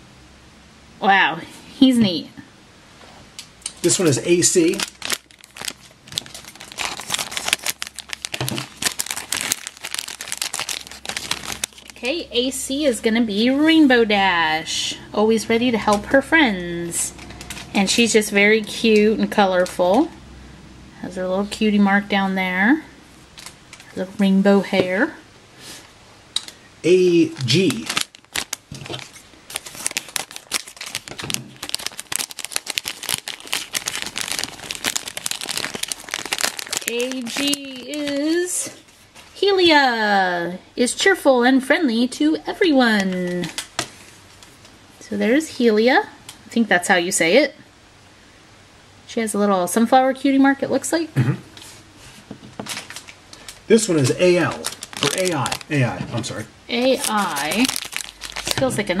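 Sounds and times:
foil bag crinkling: 3.8s - 12.2s, 26.4s - 39.4s, 52.5s - 59.0s.

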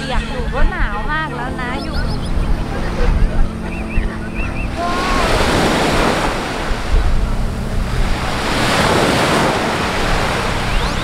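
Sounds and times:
wind buffeting microphone: 0.0s - 11.0s
waves washing up a beach: 2.0s - 11.0s.

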